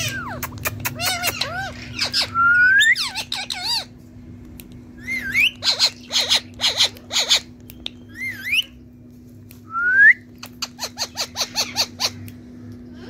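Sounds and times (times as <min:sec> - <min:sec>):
parrot whistling and squawking: 0:00.0 - 0:03.9, 0:05.0 - 0:08.8, 0:10.4 - 0:12.3
faint steady hum: 0:00.0 - 0:13.0.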